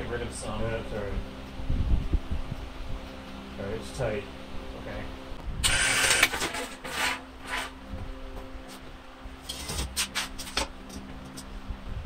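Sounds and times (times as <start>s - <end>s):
low steady hum: 0.0s - 12.0s
metal bracket scraping concrete: 5.7s - 7.8s.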